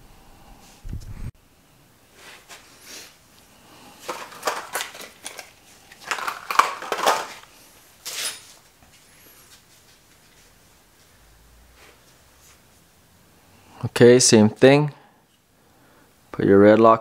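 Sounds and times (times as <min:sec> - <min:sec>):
tools and metal parts clinking: 0:04.0 - 0:08.7.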